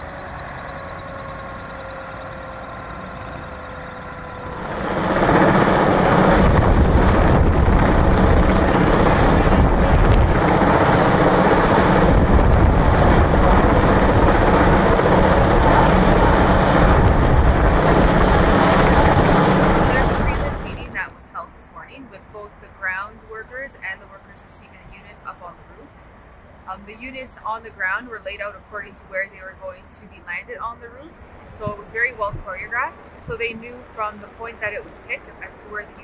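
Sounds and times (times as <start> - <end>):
helicopter rotor and engine noise: 0.0 - 22.8, 31.1 - 36.0
helicopter whine: 0.0 - 25.4, 28.2 - 36.0.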